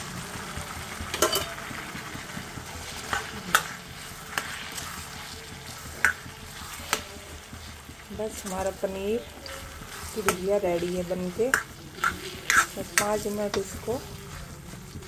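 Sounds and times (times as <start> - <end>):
gravy sizzling: 0.0 - 15.0
metal spatula clinking on pan: 1.1 - 1.6.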